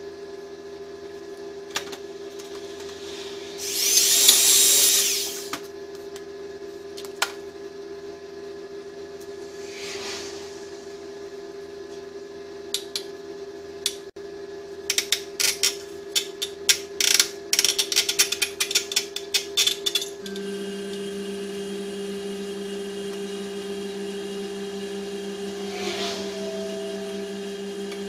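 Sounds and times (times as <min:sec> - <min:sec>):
steady hum: 0:01.6 - 0:05.6, 0:09.0 - 0:12.4, 0:20.2 - 0:28.0.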